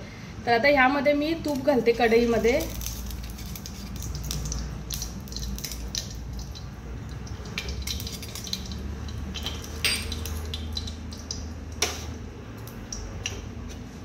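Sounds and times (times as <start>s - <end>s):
low steady hum: 0.0s - 14.0s
metal spoon scraping a bowl: 2.6s - 4.6s
spoon clinking against metal: 7.4s - 11.0s.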